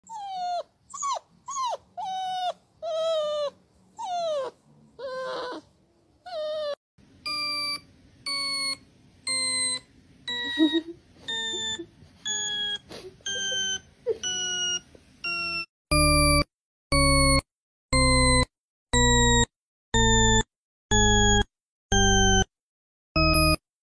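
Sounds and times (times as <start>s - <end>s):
dog whining: 0.0s - 6.8s, 9.5s - 14.8s
short electronic beeps: 7.3s - 16.4s, 20.0s - 22.5s.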